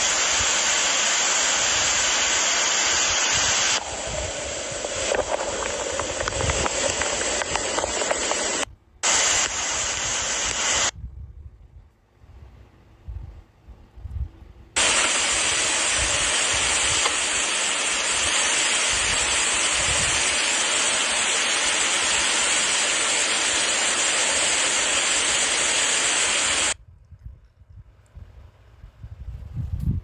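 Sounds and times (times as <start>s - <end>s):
heavy rain pouring: 0.0s - 10.9s, 14.8s - 26.8s.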